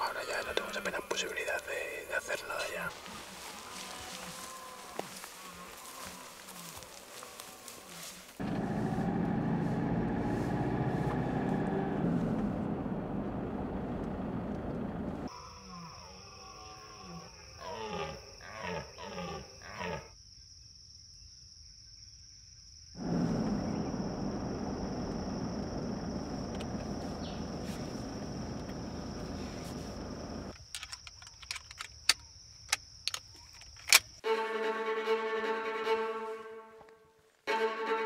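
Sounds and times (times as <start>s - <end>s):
deer stag roaring: 3.4s - 8.1s.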